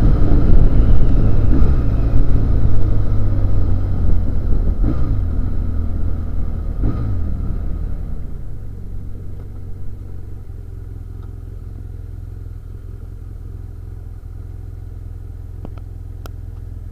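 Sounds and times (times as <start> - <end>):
motorcycle engine slowing: 0.0 - 16.9
motorcycle engine idling: 7.7 - 16.9.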